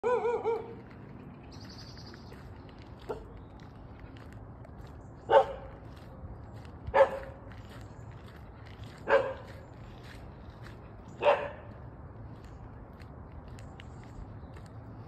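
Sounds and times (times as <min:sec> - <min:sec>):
dog barking: 0:00.0 - 0:00.8, 0:05.3 - 0:05.8, 0:06.9 - 0:07.4, 0:09.0 - 0:09.5, 0:11.2 - 0:11.7.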